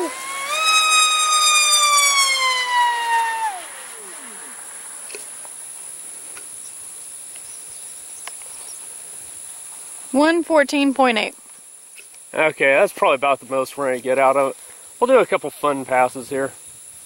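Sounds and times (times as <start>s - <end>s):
electric motor and propeller whining: 0.0s - 5.8s.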